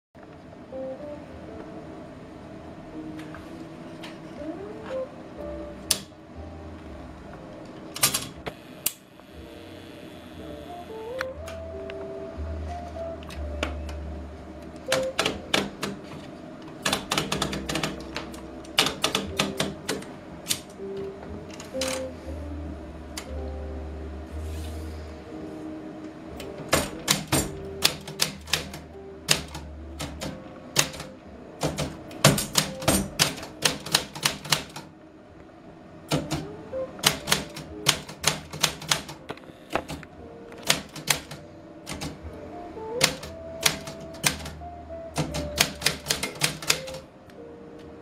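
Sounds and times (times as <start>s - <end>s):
typewriter keys striking: 7.9s - 8.4s, 14.8s - 20.8s, 26.5s - 34.9s, 36.1s - 39.2s, 40.6s - 42.2s, 43.0s - 47.0s.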